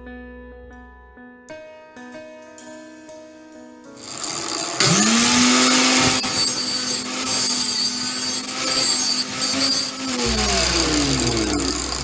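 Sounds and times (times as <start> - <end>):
abrasive disc grinding hiss: 4.0 - 12.0
grinder motor whining: 4.0 - 12.0.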